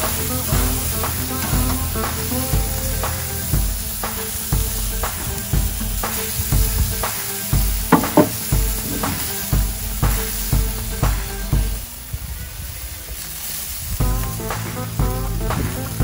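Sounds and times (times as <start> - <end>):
background music with steady beat: 0.0 - 11.9, 14.0 - 16.0
burger patties sizzling on grill: 0.0 - 16.0
brief knocks: 7.9 - 9.2.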